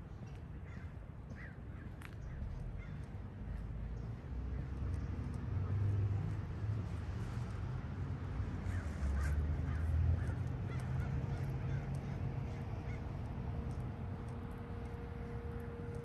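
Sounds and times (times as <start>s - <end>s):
street traffic rumble: 0.0s - 16.0s
crows cawing: 2.8s - 3.0s, 8.7s - 13.1s
faint steady hum: 12.5s - 16.0s.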